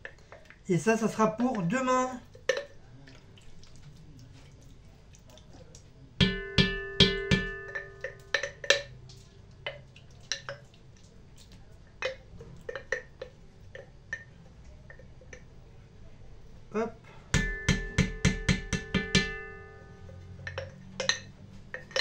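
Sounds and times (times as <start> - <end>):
spoon knocking on pot: 6.2 - 8.9, 17.3 - 22.0.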